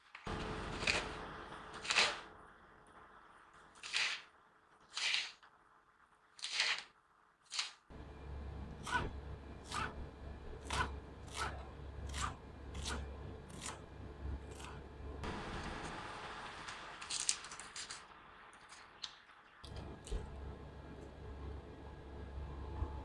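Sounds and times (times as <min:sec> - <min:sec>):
knife slicing on chopping board: 0:10.6 - 0:13.8.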